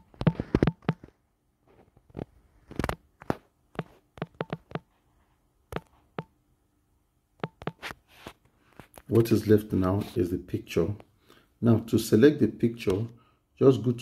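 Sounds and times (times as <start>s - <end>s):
typing taps on touchscreen: 0.0s - 1.1s, 3.7s - 4.9s, 5.7s - 6.4s, 7.4s - 7.8s.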